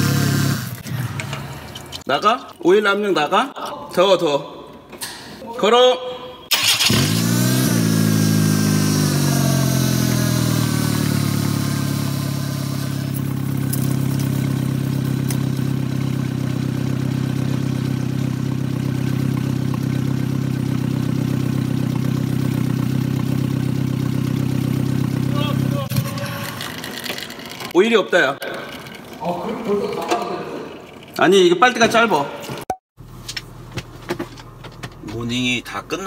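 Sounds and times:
car engine idling: 0:06.6 - 0:27.6
oil flung off spinning crankshaft: 0:25.9 - 0:27.8.

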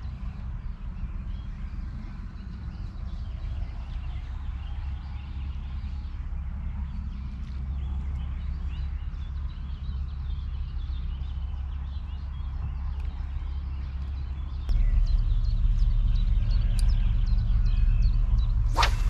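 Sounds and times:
small birds chirping: 0:00.0 - 0:19.0
wind rumble on microphone: 0:00.0 - 0:19.0.

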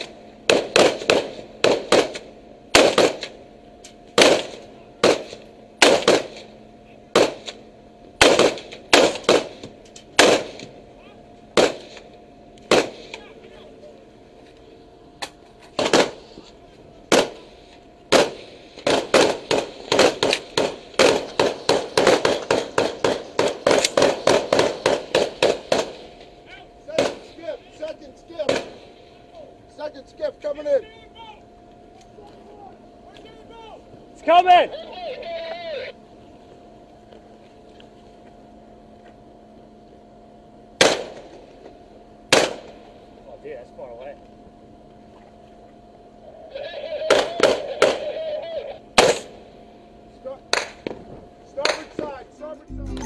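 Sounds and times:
rifle shots: 0:00.0 - 0:03.4, 0:04.2 - 0:06.5, 0:07.1 - 0:07.6, 0:08.2 - 0:09.6, 0:10.2 - 0:10.6, 0:11.6 - 0:12.0, 0:12.7 - 0:13.1, 0:17.1 - 0:17.4, 0:18.1 - 0:26.0.

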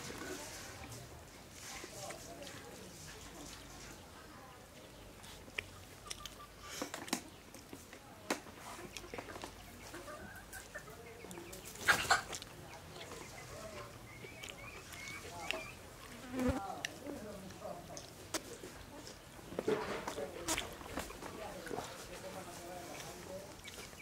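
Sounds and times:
chickens clucking: 0:02.0 - 0:24.0
person chewing and smacking: 0:05.5 - 0:07.2, 0:12.3 - 0:13.2, 0:14.1 - 0:15.8, 0:23.0 - 0:24.0.

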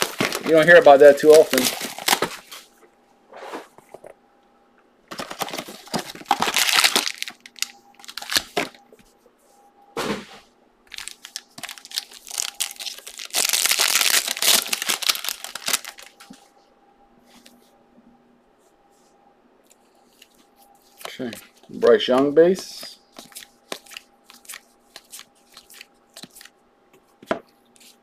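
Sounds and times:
foil wrapper crinkling and tearing: 0:00.0 - 0:02.6, 0:05.1 - 0:08.8, 0:10.9 - 0:16.3
faint steady hum: 0:00.0 - 0:28.0.

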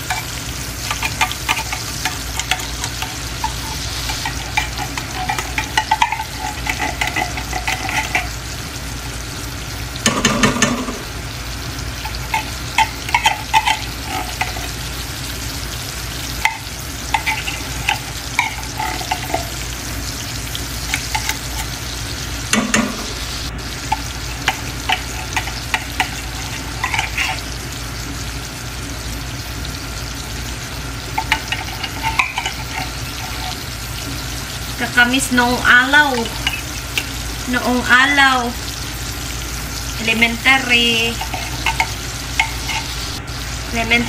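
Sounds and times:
metal spoon scraping and clinking: 0:00.0 - 0:08.4, 0:12.0 - 0:14.8, 0:16.4 - 0:19.6, 0:20.8 - 0:21.8, 0:23.9 - 0:27.5, 0:31.2 - 0:33.6, 0:41.0 - 0:43.2
milk sizzling in hot oil: 0:00.0 - 0:44.0.

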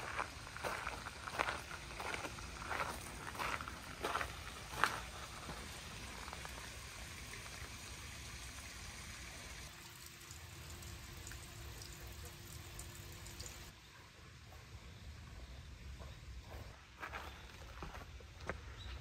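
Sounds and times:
water trickling into stone basin: 0:00.0 - 0:13.8.

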